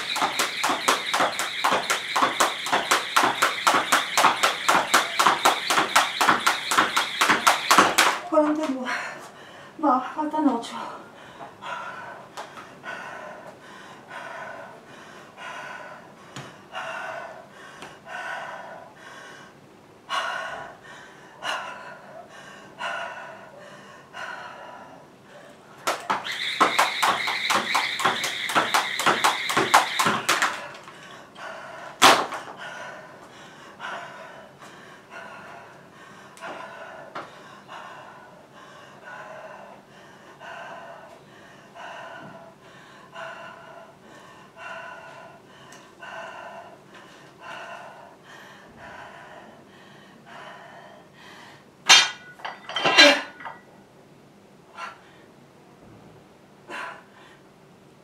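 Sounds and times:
jump rope slapping floor: 0:00.0 - 0:08.8, 0:25.8 - 0:31.0, 0:32.0 - 0:32.5.

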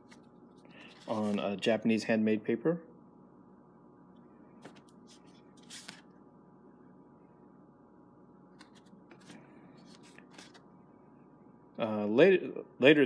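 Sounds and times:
paper rustling: 0:00.0 - 0:01.4, 0:04.6 - 0:06.1, 0:08.6 - 0:10.6
quiet room hum: 0:00.0 - 0:13.0.

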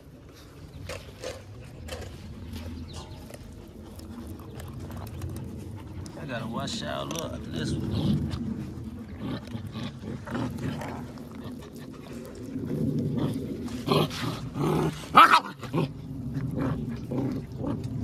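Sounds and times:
puppies growling: 0:00.8 - 0:18.0.

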